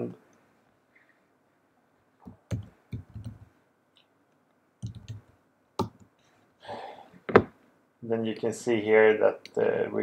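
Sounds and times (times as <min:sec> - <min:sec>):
keyboard typing clicks: 0:02.3 - 0:03.5, 0:04.8 - 0:06.1.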